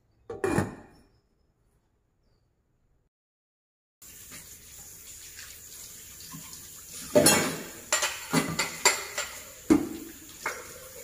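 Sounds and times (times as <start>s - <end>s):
dishes clattering: 0.3s - 1.0s, 7.1s - 11.0s
crockery and utensils knocking: 7.2s - 10.0s.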